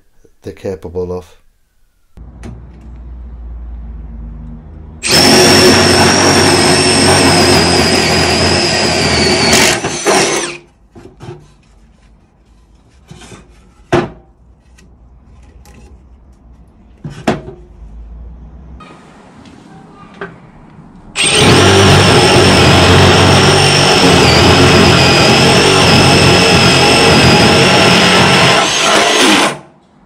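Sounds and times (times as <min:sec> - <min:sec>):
drill boring through wood: 0:05.0 - 0:10.7, 0:21.2 - 0:29.7.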